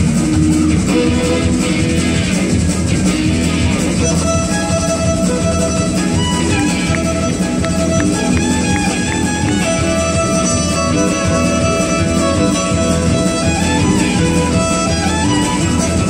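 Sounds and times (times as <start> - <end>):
bass guitar: 0.0 - 16.0
drums: 0.0 - 16.0
violin playing melody: 3.8 - 16.0.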